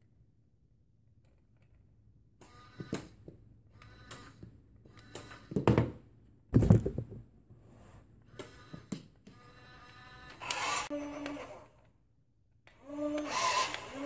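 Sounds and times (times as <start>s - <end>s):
toy car motors whirring: 2.4s - 5.6s, 8.3s - 12.0s, 12.6s - 14.0s
heavy thumps: 5.6s - 7.3s.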